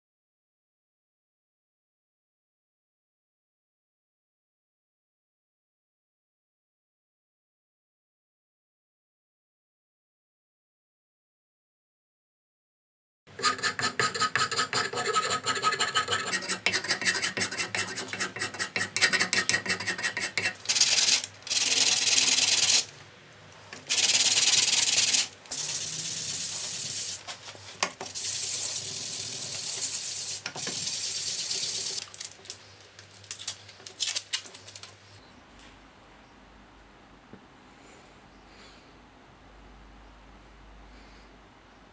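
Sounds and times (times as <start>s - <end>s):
file rasping on wood: 13.4s - 22.8s
sandpaper sanding wood: 13.4s - 22.9s, 23.9s - 32.0s.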